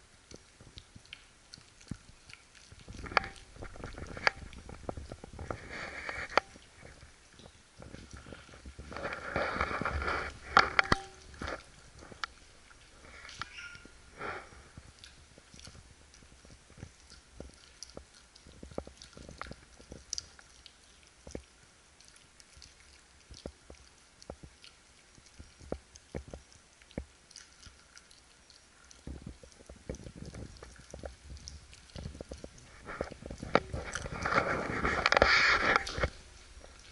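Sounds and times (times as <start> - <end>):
dog chewing from metal bowl: 2.7 - 13.8, 29.0 - 36.9.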